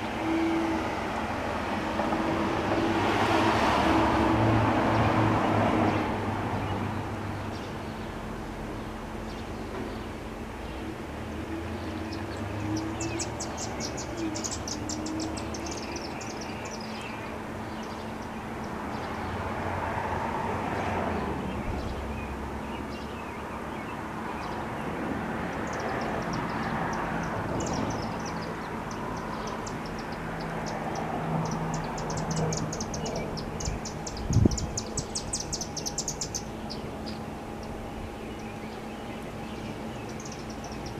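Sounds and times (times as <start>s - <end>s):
broad wash of noise: 0.0s - 9.3s
high rapid chirping trills: 31.5s - 38.8s.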